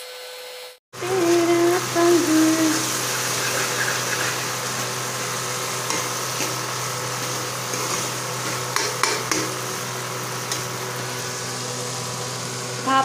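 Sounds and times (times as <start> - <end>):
exhaust fan hum: 1.0 - 13.0
metal spoon scraping a pan: 3.1 - 4.8, 5.8 - 6.6, 7.2 - 9.6.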